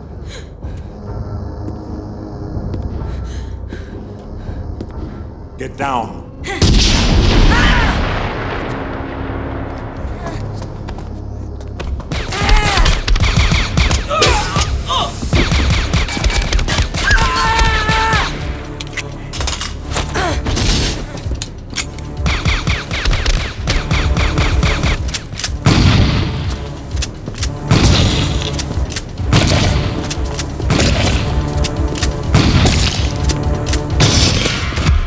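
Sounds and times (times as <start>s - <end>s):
deep shotgun blasts: 6.6s - 8.6s, 27.6s - 28.5s, 29.3s - 30.0s, 32.2s - 33.2s, 33.9s - 35.0s.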